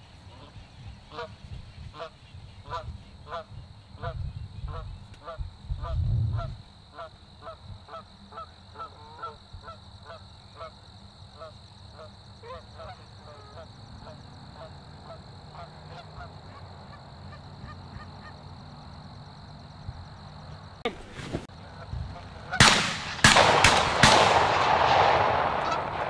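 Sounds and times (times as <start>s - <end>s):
geese honking: 0.3s - 6.0s, 6.9s - 10.8s, 11.4s - 19.0s, 21.6s - 22.8s, 25.6s - 26.0s.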